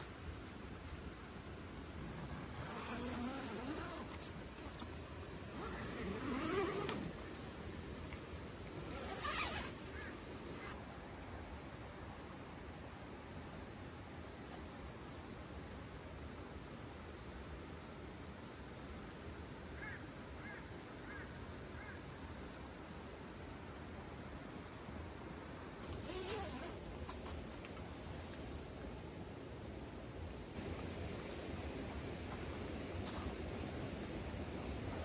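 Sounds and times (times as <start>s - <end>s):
tent zipper rasping: 1.9s - 7.5s, 8.7s - 10.8s, 25.8s - 27.4s.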